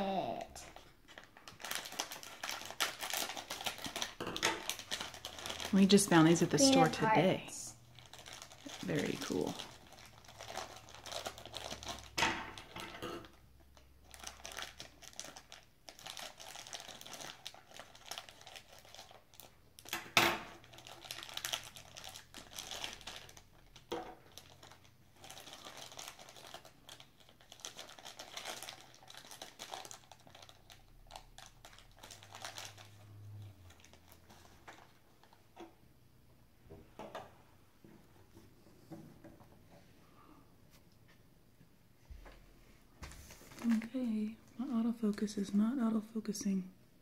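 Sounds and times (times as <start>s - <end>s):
plastic bag crinkling: 0.6s - 19.9s, 20.5s - 35.5s, 43.3s - 45.4s.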